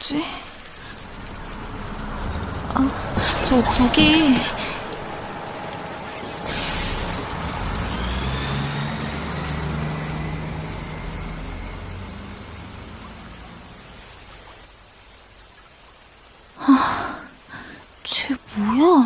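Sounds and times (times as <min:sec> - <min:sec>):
rain hiss: 0:00.0 - 0:19.0
bus engine pulling away: 0:00.4 - 0:14.7.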